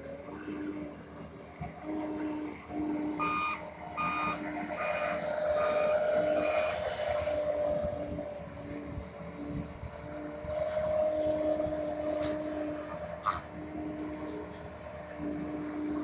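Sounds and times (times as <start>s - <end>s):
diesel engine revving: 0.0s - 16.0s
backup alarm beeping: 3.2s - 6.5s.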